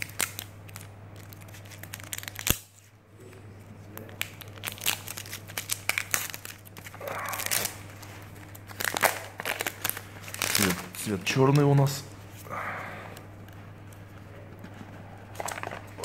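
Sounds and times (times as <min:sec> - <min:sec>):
plastic wrap crinkling: 0:00.0 - 0:02.9, 0:03.8 - 0:12.4, 0:13.1 - 0:16.0.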